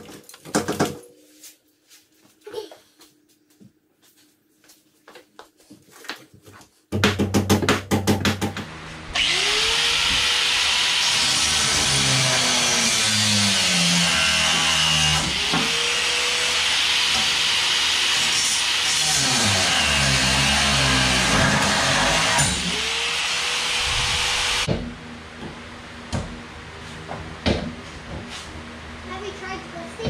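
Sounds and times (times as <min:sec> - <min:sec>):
angle grinder cutting metal: 0:09.1 - 0:24.7.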